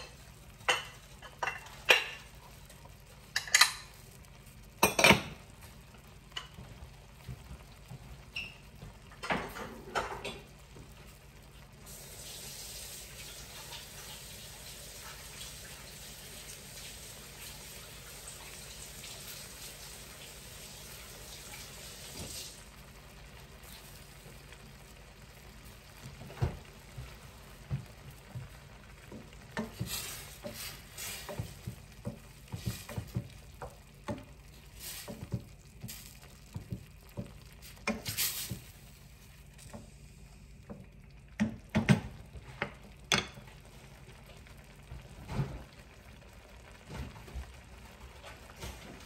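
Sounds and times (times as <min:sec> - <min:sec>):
food sizzling: 0:00.0 - 0:49.0
utensil knocking and scraping pan: 0:29.2 - 0:34.3.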